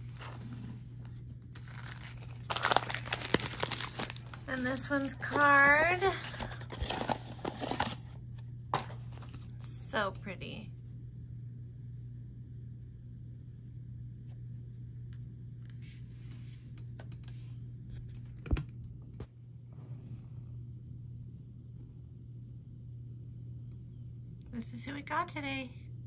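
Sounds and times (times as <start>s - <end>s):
packaging rustling: 0.0s - 0.8s, 1.5s - 8.2s
steady low hum: 0.0s - 26.0s.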